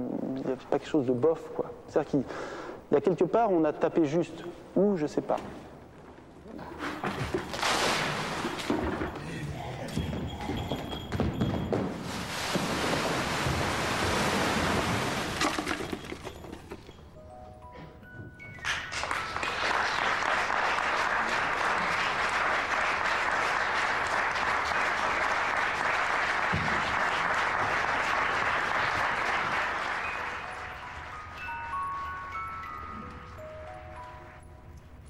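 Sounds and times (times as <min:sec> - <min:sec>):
audience applause: 0:18.9 - 0:32.0.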